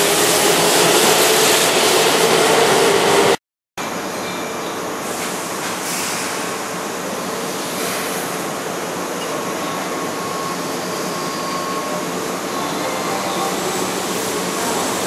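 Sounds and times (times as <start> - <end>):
brief air hisses: 5.1 - 6.7.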